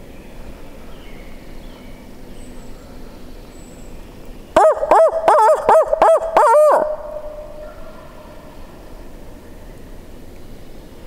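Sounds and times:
man imitating owl hoots: 4.6s - 7.7s.

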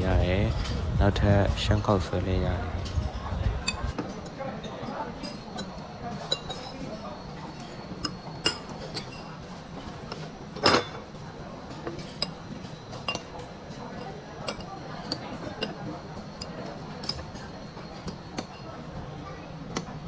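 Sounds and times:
metal spoons clinking on ceramic bowls: 2.9s - 9.5s, 10.1s - 11.1s, 11.7s - 18.8s.

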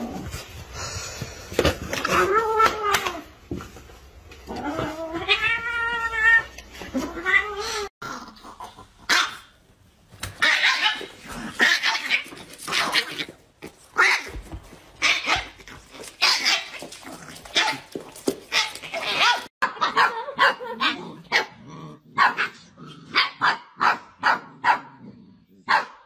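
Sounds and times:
dog barking: 19.2s - 21.6s, 22.2s - 25.0s, 25.7s - 26.0s.

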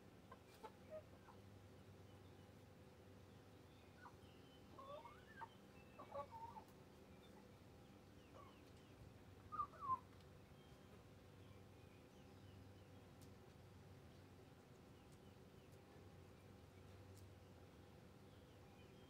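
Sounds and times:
faint steady hum: 0.0s - 19.0s
hens clucking: 0.2s - 1.5s, 4.0s - 7.4s.

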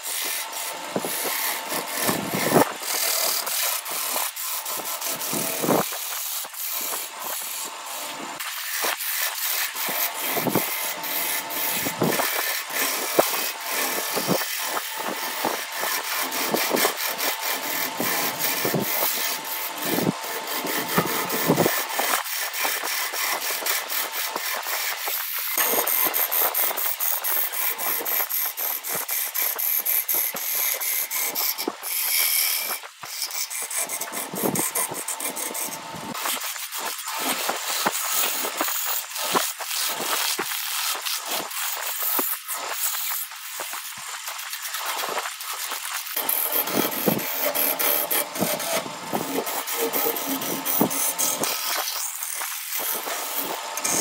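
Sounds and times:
lathe tool scraping wood: 0.0s - 54.0s
thin high whine: 46.2s - 54.0s.

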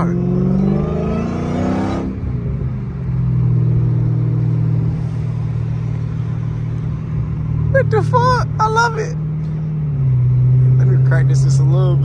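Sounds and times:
car engine accelerating and cruising: 0.0s - 12.0s.

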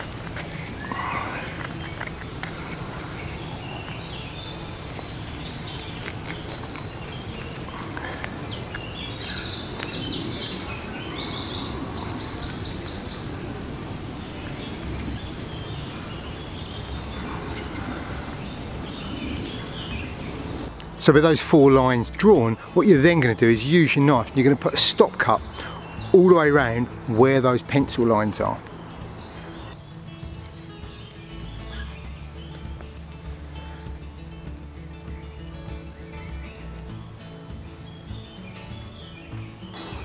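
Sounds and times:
songbird singing trills: 0.5s - 20.7s, 21.5s - 40.0s
faint bird chirps: 2.8s - 13.7s, 30.6s - 32.6s.

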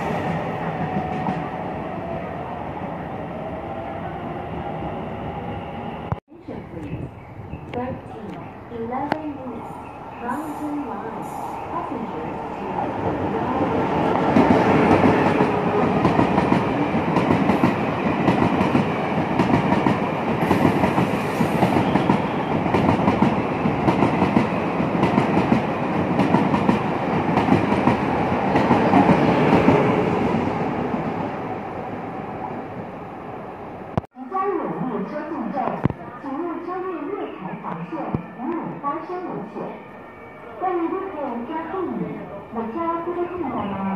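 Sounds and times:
train passing with rumble: 0.0s - 34.0s.

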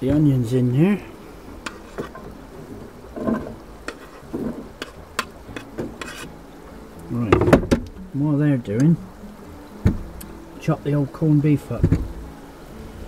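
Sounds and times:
onions sizzling in a frying pan: 0.0s - 13.0s
utensil scraping a pan: 1.2s - 6.4s.

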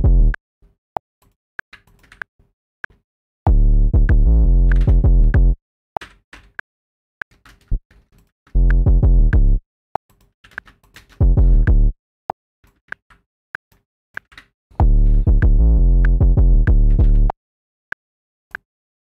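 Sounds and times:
bass gliding between notes: 8.6s - 9.6s, 14.8s - 17.3s.

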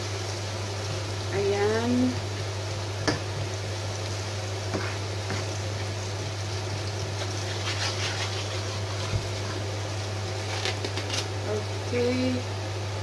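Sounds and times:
low constant hum: 0.0s - 13.0s
vegetables sizzling in a pan: 0.0s - 13.0s
wooden spoon knocking on pan: 3.0s - 3.3s.

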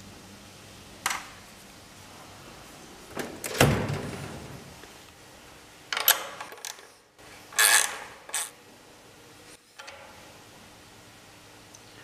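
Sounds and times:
metal drawer sliding shut with bang: 3.2s - 4.7s
wrench clicking on metal: 7.6s - 8.5s.

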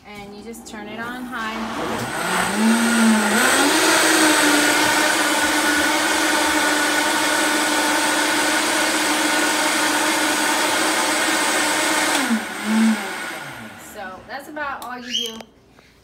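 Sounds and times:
blender motor whining: 0.8s - 14.2s
water churning in blender: 1.0s - 14.2s.

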